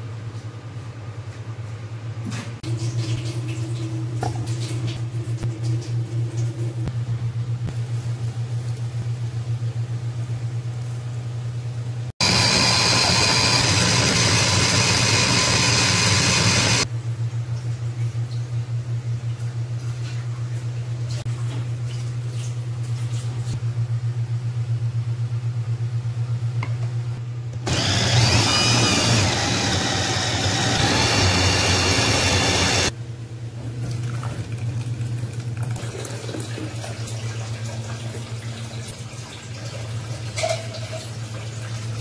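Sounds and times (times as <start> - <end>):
electric food chopper running: 12.2 - 16.9, 27.6 - 33.0.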